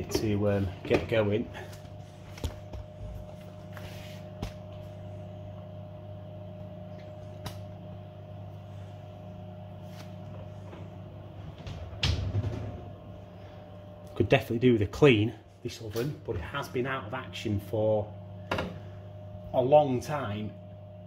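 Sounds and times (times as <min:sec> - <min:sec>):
gas oven humming: 0:00.0 - 0:21.0
oven door shutting: 0:10.6 - 0:13.1, 0:18.5 - 0:18.9.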